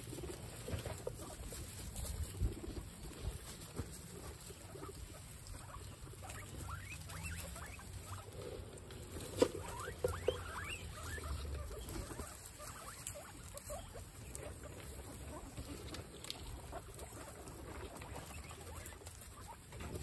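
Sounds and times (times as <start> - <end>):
guinea pigs munching: 0.0 - 20.0
guinea pig squeaks: 0.2 - 20.0.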